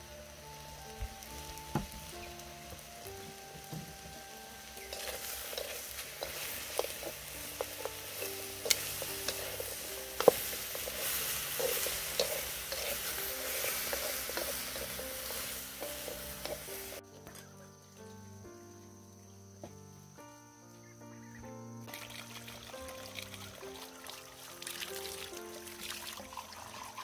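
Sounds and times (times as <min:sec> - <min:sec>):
food sizzling in hot pan: 0:00.0 - 0:17.0, 0:21.9 - 0:27.0
soft background music: 0:00.0 - 0:27.0
utensil scraping pan: 0:04.8 - 0:17.0.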